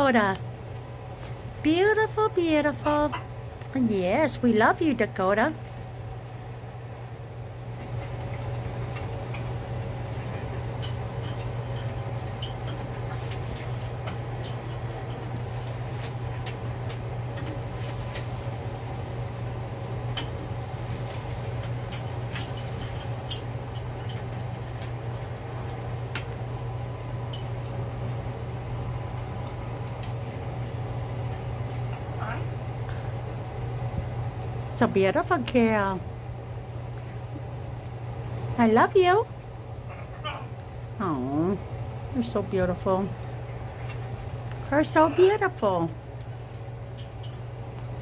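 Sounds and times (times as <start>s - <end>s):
wings flapping in water bowl: 7.9s - 18.9s
birds moving on perches: 20.7s - 25.8s.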